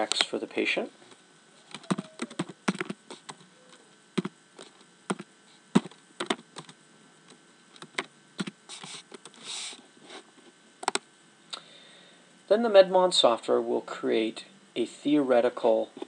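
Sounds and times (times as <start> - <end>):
computer keyboard keystrokes: 1.7 - 3.4, 10.8 - 11.0
short soft hisses: 8.7 - 10.3.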